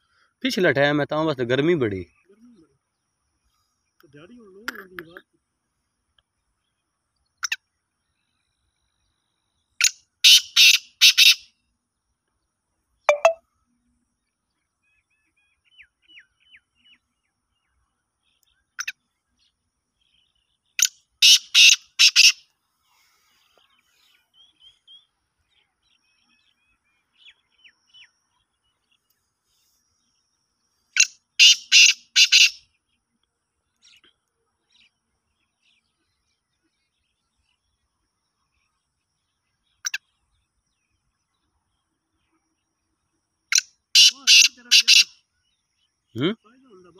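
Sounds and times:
francolin harsh calls: 9.7 - 11.6, 20.1 - 25.1, 30.9 - 32.8, 43.5 - 46.9.

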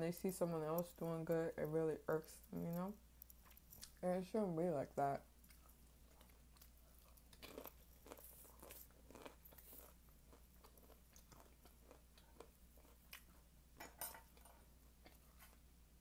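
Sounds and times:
crunchy food being chewed: 0.2 - 4.0, 5.4 - 13.5, 14.2 - 15.6.

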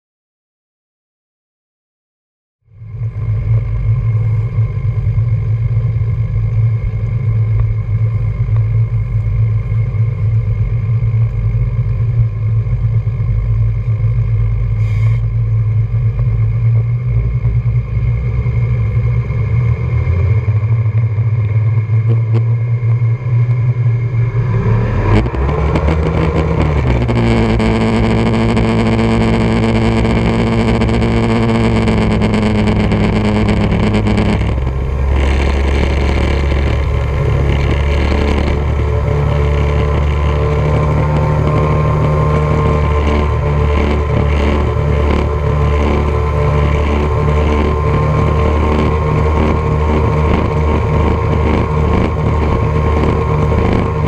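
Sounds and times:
outboard motors revving: 17.2 - 54.0.

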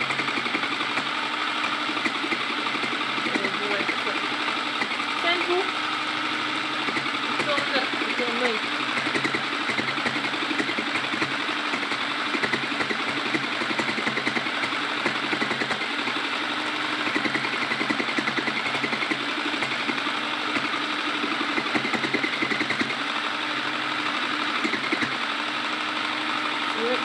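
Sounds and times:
sewing machine stitching: 0.0 - 27.0.

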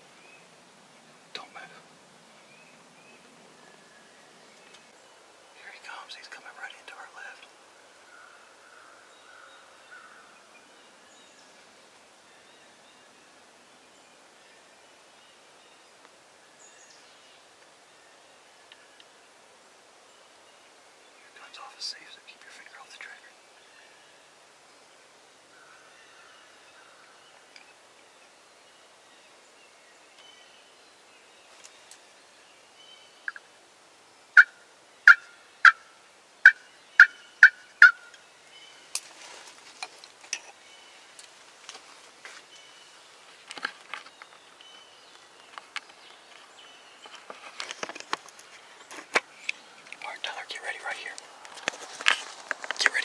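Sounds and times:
turkey yelping: 34.4 - 35.8
soft clicks and rustling: 43.3 - 50.1, 51.2 - 53.0.

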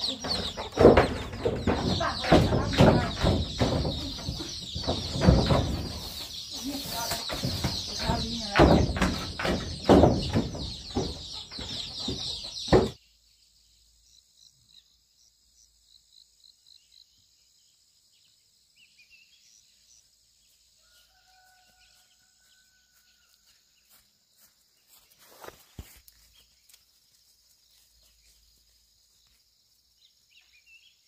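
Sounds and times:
chickens squawking and clucking: 0.0 - 13.0.

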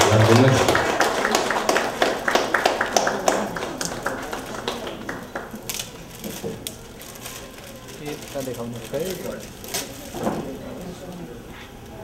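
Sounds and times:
small group clapping: 0.0 - 6.8.

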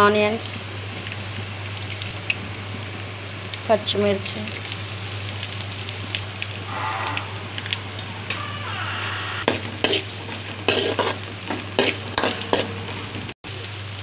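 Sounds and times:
vegetables sizzling in oil: 0.0 - 8.3, 9.4 - 14.0
spatula scraping a pan: 9.5 - 11.2, 11.8 - 12.7.

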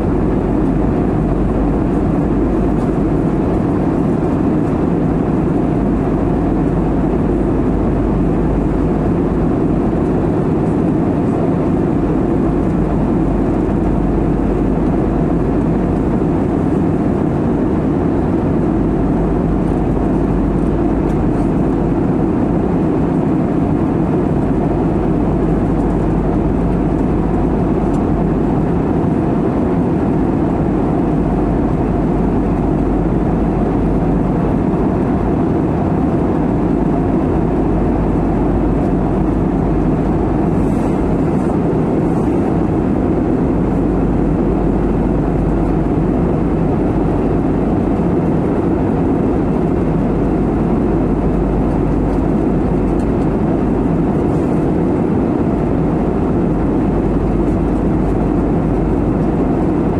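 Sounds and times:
jet airliner cabin noise: 0.0 - 59.9.

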